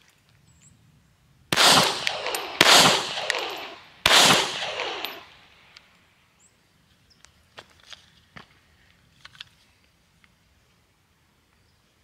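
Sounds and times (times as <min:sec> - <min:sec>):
pistol shots with echo: 0:01.5 - 0:05.7.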